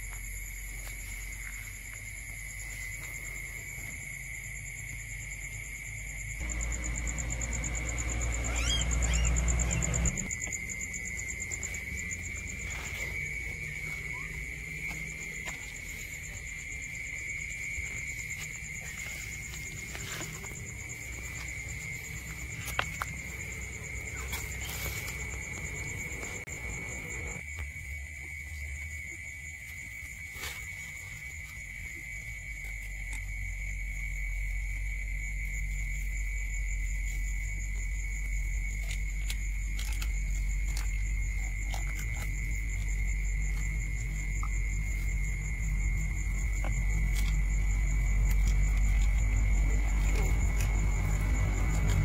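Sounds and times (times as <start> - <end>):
crickets trilling: 0.0 - 52.0
low rumble of handling: 6.4 - 27.4, 37.2 - 52.0.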